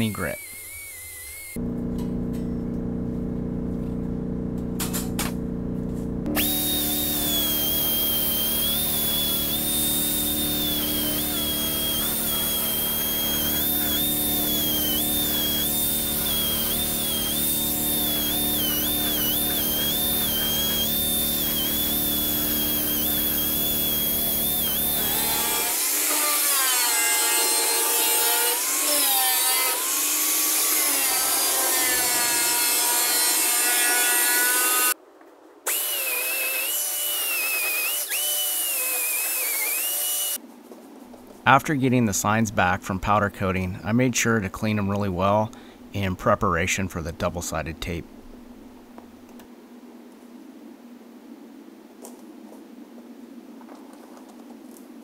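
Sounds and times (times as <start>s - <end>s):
angle grinder sanding steel: 6.3s - 35.0s.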